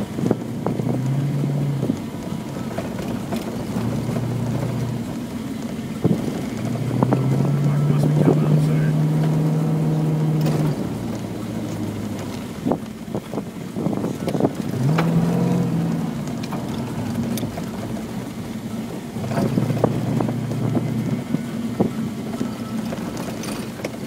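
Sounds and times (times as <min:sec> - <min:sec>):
car engine from inside cabin: 0:00.0 - 0:24.0
knocks and rattles: 0:10.2 - 0:24.0.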